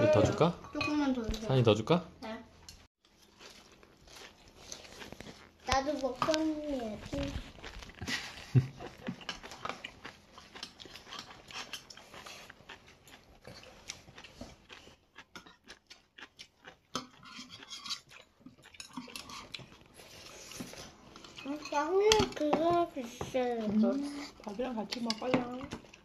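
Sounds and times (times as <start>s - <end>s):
children chewing noodles: 2.6s - 26.0s
utensils clicking on metal bowls: 24.5s - 26.0s.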